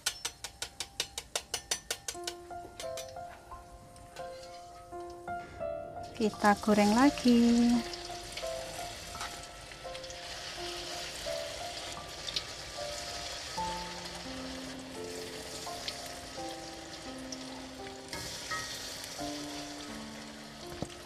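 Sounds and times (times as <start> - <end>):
soft background music: 0.0 - 21.0
batter sizzling in hot oil: 6.1 - 21.0.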